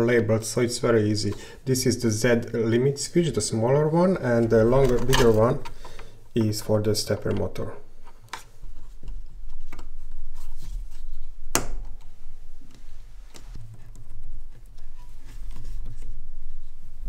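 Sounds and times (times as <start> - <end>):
plastic connectors rustling: 4.3 - 12.0.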